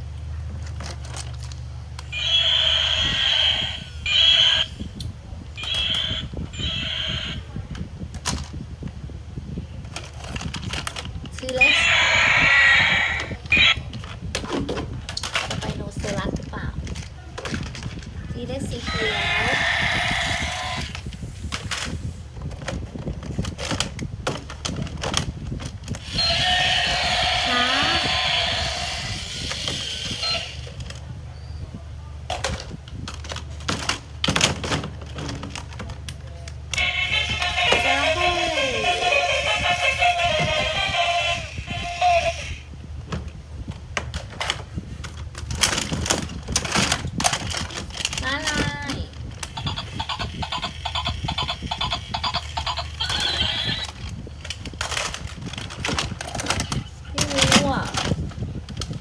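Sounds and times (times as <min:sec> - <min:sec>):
plastic toys clattering in bin: 0:00.6 - 0:01.6, 0:09.8 - 0:11.6, 0:13.9 - 0:18.8, 0:21.5 - 0:26.0, 0:32.3 - 0:36.2, 0:44.0 - 0:49.8, 0:52.9 - 0:59.0.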